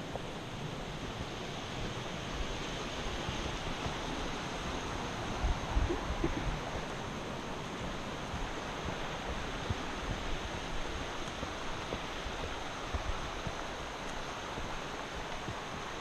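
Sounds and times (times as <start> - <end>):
creek rushing: 0.0 - 16.0.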